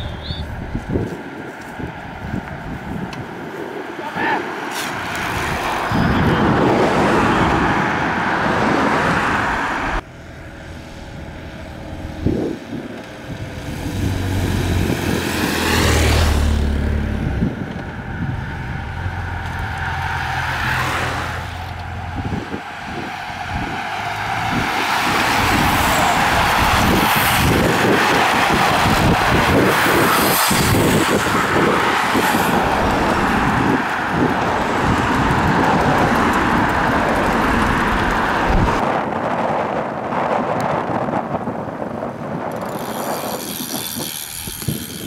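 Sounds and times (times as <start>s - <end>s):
cars driving past: 0.0s - 39.4s
wind noise on microphone: 0.0s - 45.0s
motorcycle engine low hum: 10.0s - 20.0s.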